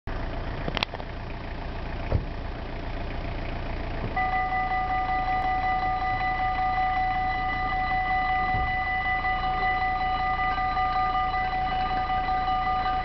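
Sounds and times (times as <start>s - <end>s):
low background rumble: 0.1s - 13.0s
thump: 2.1s - 2.3s, 8.5s - 8.8s
level crossing warning bell: 4.2s - 13.0s.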